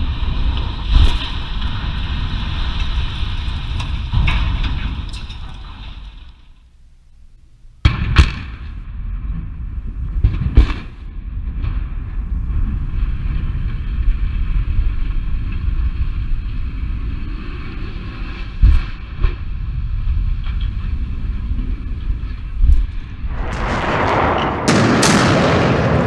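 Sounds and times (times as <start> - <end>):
explosive bang: 23.3 - 26.0
heavy crashing impacts: 23.3 - 26.0.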